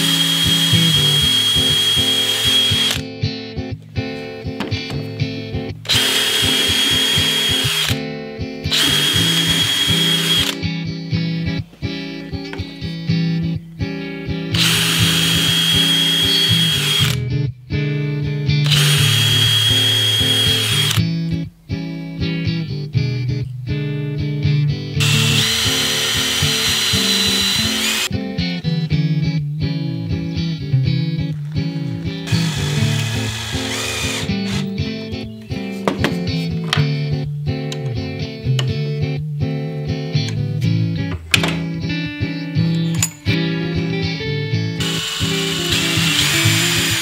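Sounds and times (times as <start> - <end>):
cordless drill drilling into wood: 0.0 - 3.0, 5.9 - 8.0, 8.7 - 10.6, 14.6 - 17.2, 18.6 - 21.0, 25.0 - 28.1, 32.3 - 34.7, 44.8 - 47.0
background music: 0.0 - 47.0.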